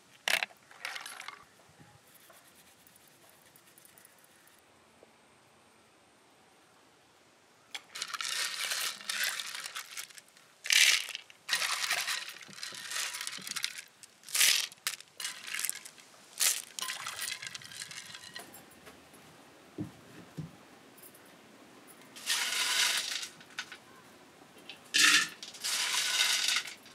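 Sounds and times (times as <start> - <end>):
clam shells clinking in water: 7.8 - 18.5, 22.2 - 23.8, 25.0 - 26.9.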